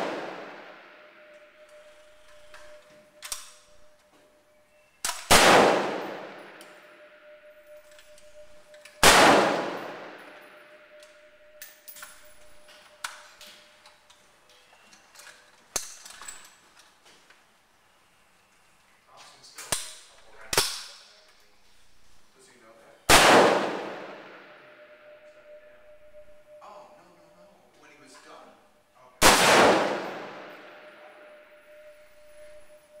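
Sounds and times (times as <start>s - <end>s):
rifle shots echoing: 0.0s - 1.7s, 5.1s - 7.4s, 9.0s - 10.9s, 23.1s - 25.2s, 29.2s - 31.9s.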